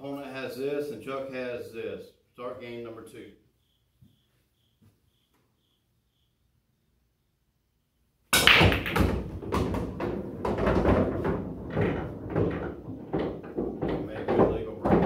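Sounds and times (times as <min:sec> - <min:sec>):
balls rumbling through ball return: 0:08.4 - 0:15.0
cue ball hitting rack: 0:08.4 - 0:15.0
pool balls clattering: 0:08.4 - 0:15.0.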